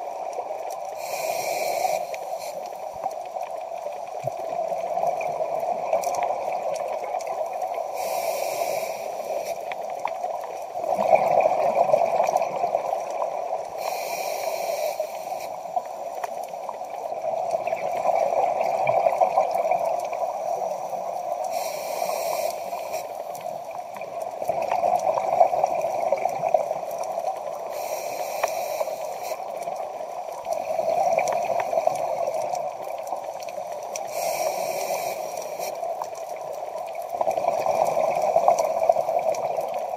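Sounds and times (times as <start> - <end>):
scuba regulator inhalation hiss: 0.9 - 2.9, 7.7 - 10.0, 13.3 - 16.8, 20.2 - 23.7, 27.6 - 30.0, 34.0 - 36.0
exhaled bubbles rushing: 10.8 - 13.4.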